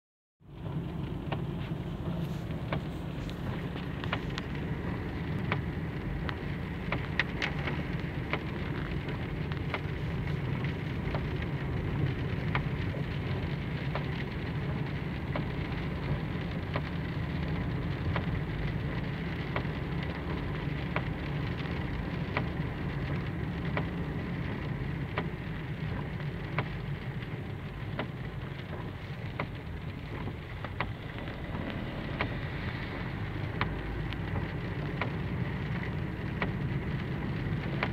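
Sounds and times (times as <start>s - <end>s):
car engine and tyres rumbling: 0.4s - 37.9s
drops striking windscreen: 0.8s - 13.2s.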